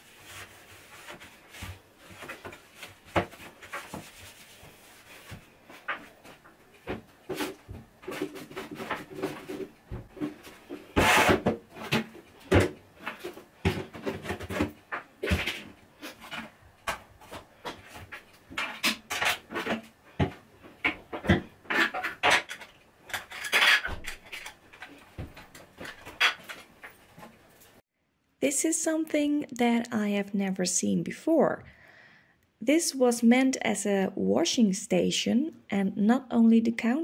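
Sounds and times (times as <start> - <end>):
items clattering: 0.3 - 27.8.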